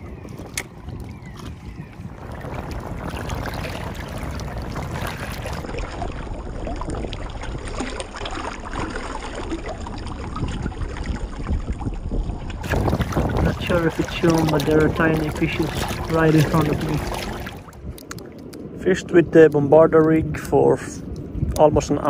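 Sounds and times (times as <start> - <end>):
wind rumbling on microphone: 0.0 - 22.0
small waves lapping on stones: 12.6 - 18.2.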